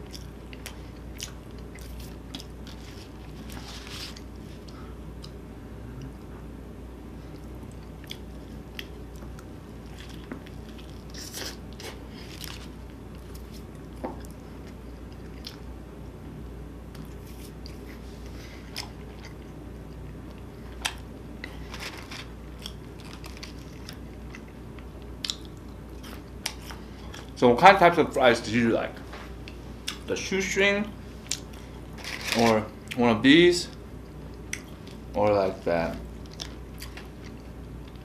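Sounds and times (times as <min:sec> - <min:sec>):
person chewing burger: 0:00.0 - 0:06.4, 0:07.3 - 0:15.7, 0:16.9 - 0:27.4, 0:36.1 - 0:38.0
low hum: 0:00.0 - 0:27.6.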